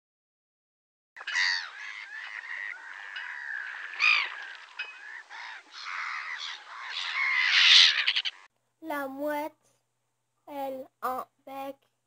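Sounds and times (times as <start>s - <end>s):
gulls calling: 1.2s - 8.5s.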